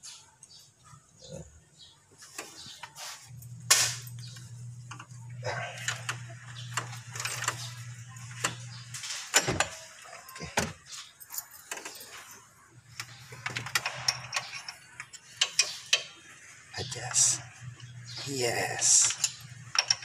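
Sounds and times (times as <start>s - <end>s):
steady low hum: 2.7s - 11.2s.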